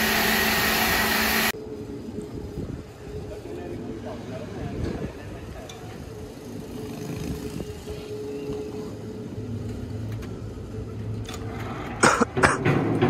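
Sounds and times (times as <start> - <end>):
wood-saw machinery humming: 0.0 - 1.6.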